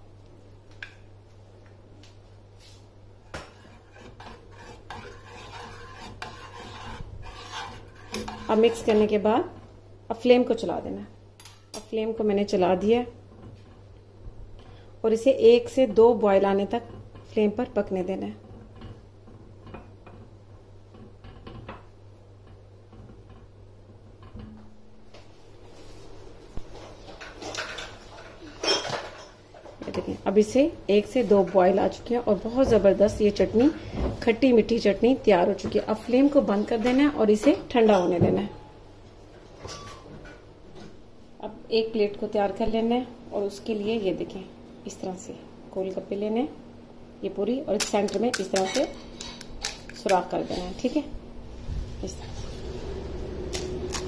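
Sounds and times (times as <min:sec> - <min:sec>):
spoon scraping metal pot: 0:03.4 - 0:09.2.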